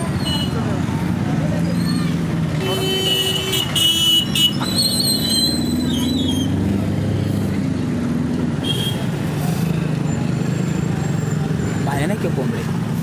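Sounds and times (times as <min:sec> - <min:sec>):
vehicle engines running: 0:00.0 - 0:13.0.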